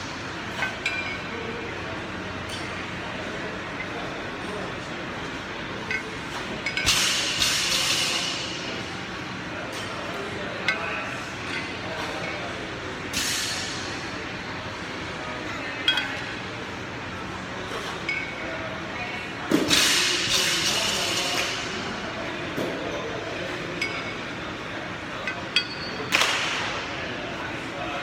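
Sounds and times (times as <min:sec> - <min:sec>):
kettlebells clinking: 0:25.2 - 0:26.1.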